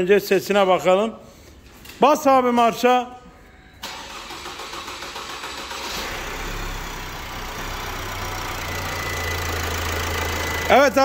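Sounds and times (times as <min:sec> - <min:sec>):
diesel engine starting and idling: 0:03.8 - 0:11.0.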